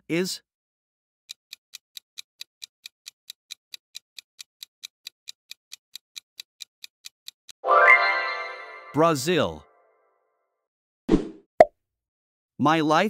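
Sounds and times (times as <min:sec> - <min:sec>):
clock-like timer ticking: 0:01.3 - 0:07.6.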